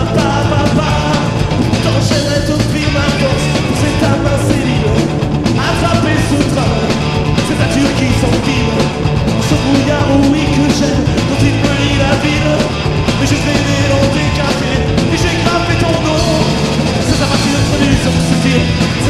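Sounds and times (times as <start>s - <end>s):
person singing: 0.0s - 19.0s
rock band playing live: 0.0s - 19.0s.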